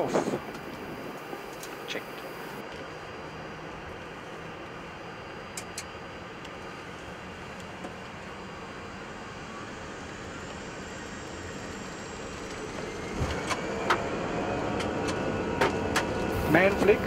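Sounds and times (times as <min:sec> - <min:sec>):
faint whine: 0:00.0 - 0:13.4, 0:16.2 - 0:17.0
jet engines spooling up: 0:00.0 - 0:17.0.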